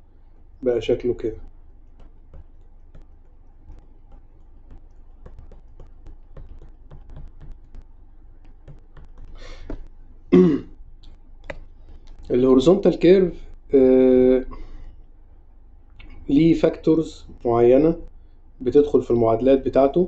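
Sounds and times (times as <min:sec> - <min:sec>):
man clearing throat: 0:10.3 - 0:10.8.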